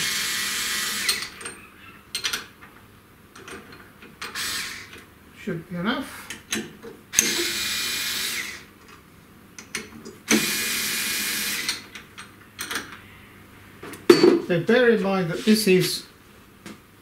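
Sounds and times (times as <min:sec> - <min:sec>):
cordless driver running: 0:04.3 - 0:05.0, 0:07.2 - 0:08.6, 0:10.3 - 0:11.8.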